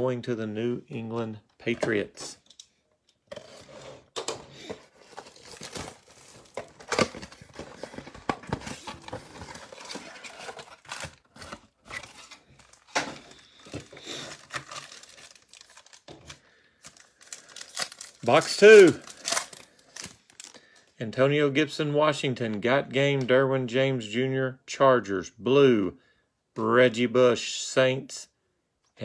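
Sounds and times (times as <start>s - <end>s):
plastic and foil wrapping tearing: 4.9s - 8.0s, 8.7s - 20.6s.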